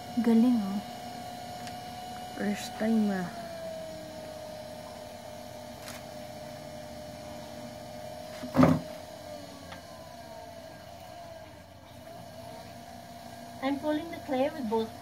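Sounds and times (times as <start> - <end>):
potter's wheel motor whining: 0.0 - 15.0
loud thump: 8.4 - 8.9.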